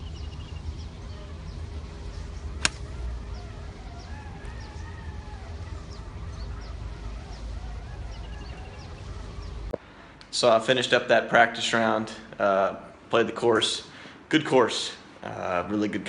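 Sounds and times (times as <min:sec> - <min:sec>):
low steady rumble: 0:00.0 - 0:10.2
birds chirping: 0:00.0 - 0:11.0
golf club striking ball: 0:02.6 - 0:02.9.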